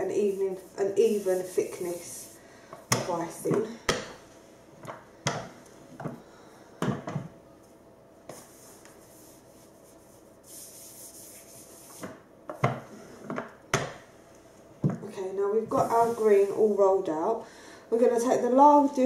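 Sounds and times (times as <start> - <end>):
hands rubbing fondant icing: 0.0 - 4.0, 8.3 - 12.2, 15.7 - 16.8.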